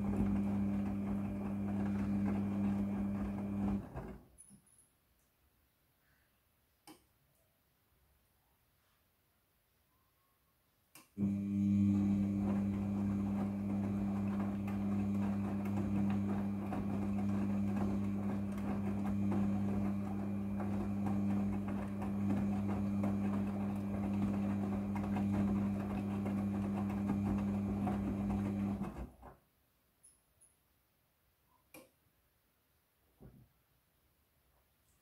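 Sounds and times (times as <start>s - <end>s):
washing machine motor hum: 0.0s - 4.2s, 11.2s - 29.3s.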